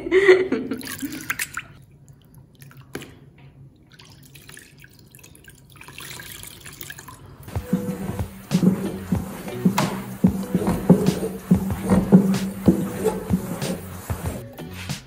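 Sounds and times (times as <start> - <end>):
trickling water: 0.7 - 14.4
water dripping and splashing: 0.8 - 14.4
cloth being wrung out: 7.5 - 14.4.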